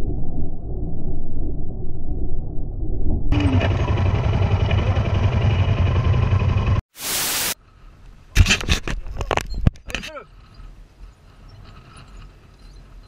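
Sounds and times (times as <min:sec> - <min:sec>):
motorcycle engine drone: 0:03.3 - 0:06.8
static hiss: 0:06.9 - 0:07.6.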